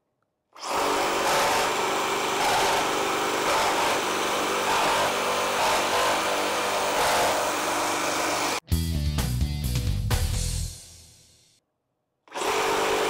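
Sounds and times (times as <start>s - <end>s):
reciprocating saw cutting wood: 0.6s - 8.6s, 12.3s - 13.0s.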